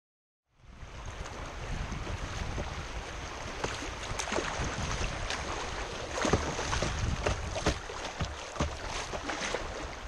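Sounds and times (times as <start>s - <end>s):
river water rushing and splashing: 0.6s - 10.0s.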